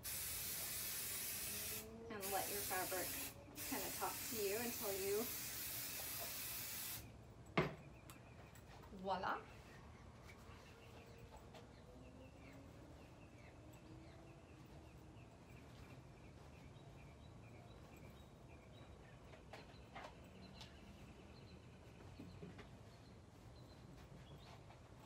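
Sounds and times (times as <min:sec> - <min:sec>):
low background hum: 0:00.0 - 0:25.0
faint bird chirping: 0:07.1 - 0:25.0.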